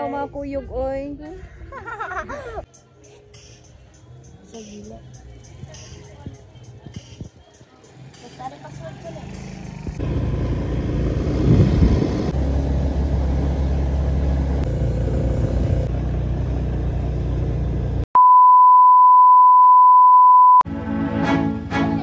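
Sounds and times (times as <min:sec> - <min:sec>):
vehicle rumbling on dirt road: 0:05.5 - 0:18.1
electronic beep tone: 0:18.2 - 0:20.6.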